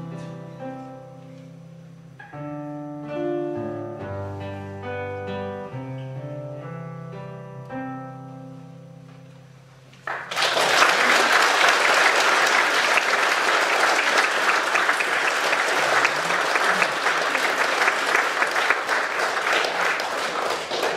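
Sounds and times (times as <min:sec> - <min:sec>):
large crowd applauding: 0:10.0 - 0:20.9.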